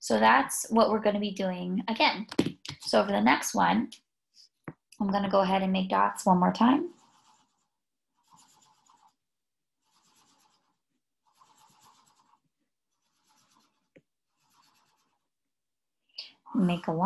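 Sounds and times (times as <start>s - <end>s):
marker scratching on paper: 6.7s - 9.2s, 9.8s - 15.4s.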